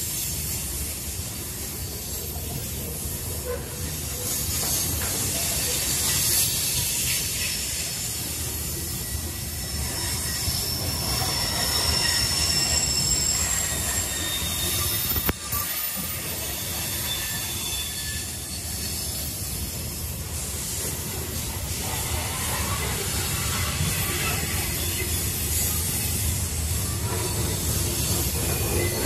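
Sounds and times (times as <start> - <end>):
railcar wheels squealing: 0.0 - 29.0.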